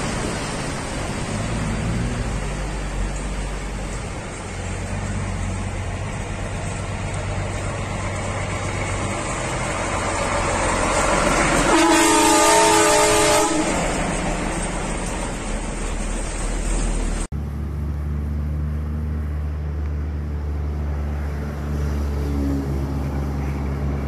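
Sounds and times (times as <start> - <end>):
truck engine and tyre noise: 0.0 - 24.0
loud air horn blast: 11.6 - 14.0.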